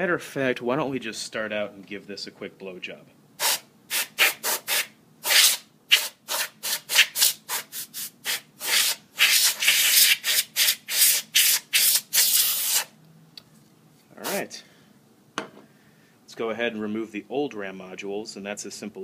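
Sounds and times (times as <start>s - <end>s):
compressed air can hissing: 3.4s - 12.9s.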